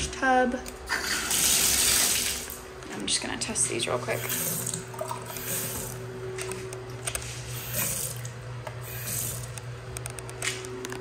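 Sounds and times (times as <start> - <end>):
faucet water running into sink: 0.9 - 2.6, 4.1 - 6.0, 7.5 - 9.6.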